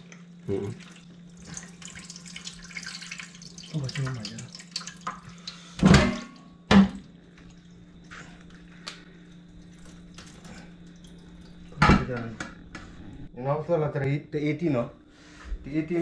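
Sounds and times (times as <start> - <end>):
water dripping in a sink: 0.0 - 11.8
kitchenware knocking: 5.8 - 7.0.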